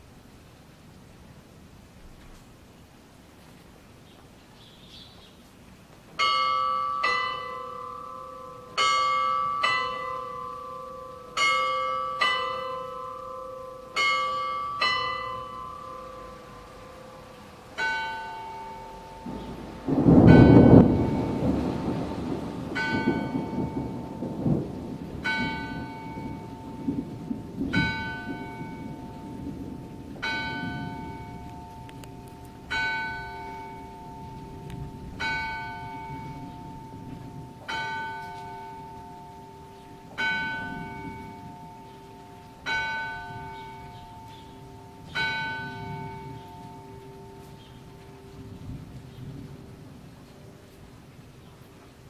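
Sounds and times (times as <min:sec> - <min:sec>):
rain falling: 0:00.0 - 0:52.0
clock bell striking: 0:06.2 - 0:21.4, 0:42.6 - 0:48.2
thunder rumble: 0:15.4 - 0:39.3, 0:39.9 - 0:42.0, 0:42.6 - 0:50.8.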